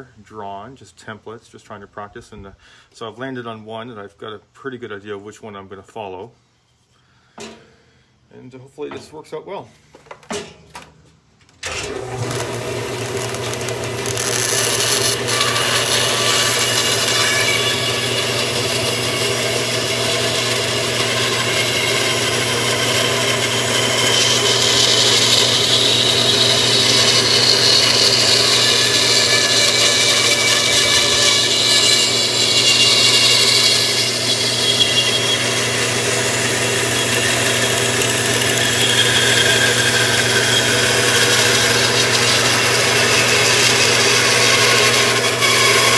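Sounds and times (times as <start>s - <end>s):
bandsaw motor hum: 11.6s - 45.9s
saw rasping through wood: 11.9s - 45.9s.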